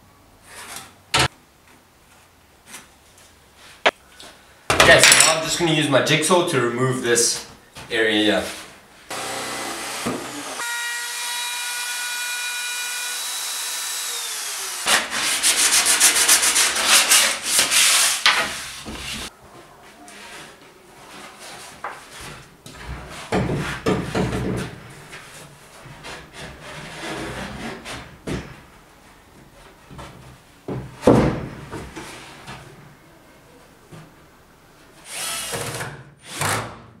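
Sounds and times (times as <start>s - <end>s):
wood router whining: 9.1s - 14.9s
hand sanding wood: 13.1s - 19.3s.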